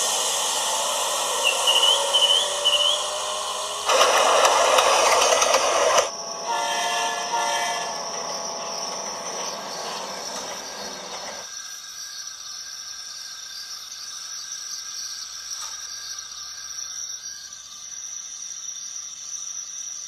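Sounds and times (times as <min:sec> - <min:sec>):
faint high whine: 0:00.0 - 0:11.5
hissing running noise: 0:00.0 - 0:11.5
model train horn chord: 0:06.1 - 0:10.1.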